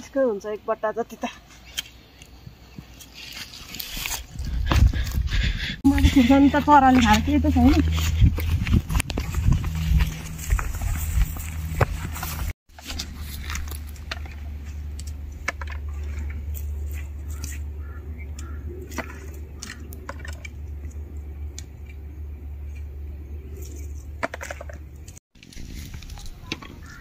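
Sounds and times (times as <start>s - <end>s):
chilli plants rustling and snapping: 1.6s - 5.2s
steady low rumble: 4.3s - 24.2s.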